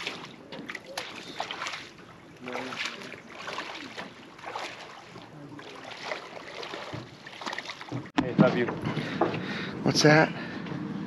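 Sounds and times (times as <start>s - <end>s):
shallow water sloshing and splashing: 0.0s - 8.2s.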